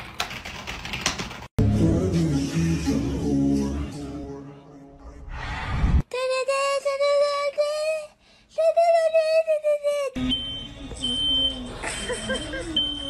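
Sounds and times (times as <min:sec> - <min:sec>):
smoke alarm beeping: 0:10.2 - 0:13.0.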